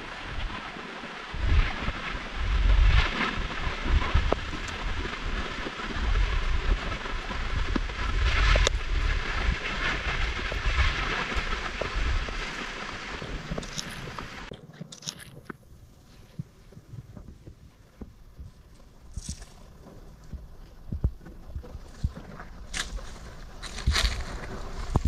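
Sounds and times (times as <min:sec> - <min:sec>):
hissing rush of wind: 0:00.0 - 0:14.5
wind buffeting microphone: 0:00.0 - 0:25.0.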